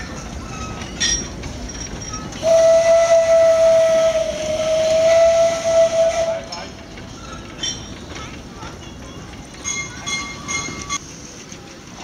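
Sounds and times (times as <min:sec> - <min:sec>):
steam locomotive whistle: 0:02.4 - 0:06.7.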